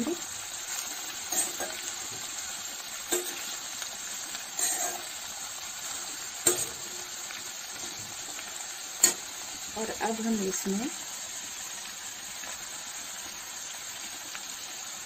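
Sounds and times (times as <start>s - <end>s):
vegetables sizzling in hot oil: 0.0s - 15.0s
metal ladle scraping and knocking pan: 4.6s - 5.1s, 6.4s - 7.0s.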